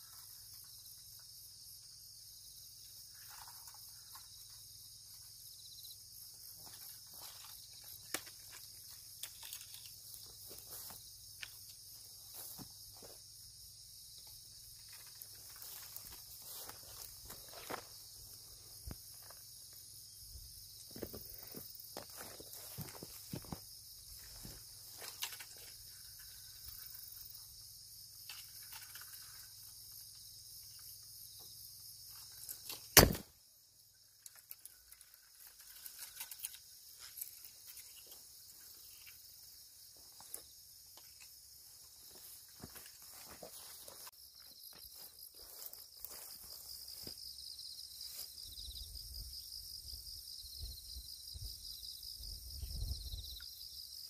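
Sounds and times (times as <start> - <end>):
insects chirring: 0.0 - 54.0
rustles and steps in grass: 6.4 - 13.4, 14.5 - 19.8, 20.9 - 27.0, 36.9 - 47.3.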